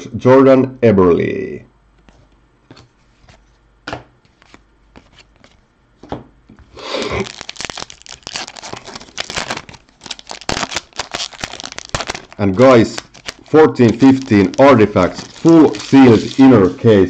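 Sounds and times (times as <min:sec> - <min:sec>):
foil wrapper tearing and crinkling: 0:06.9 - 0:17.0.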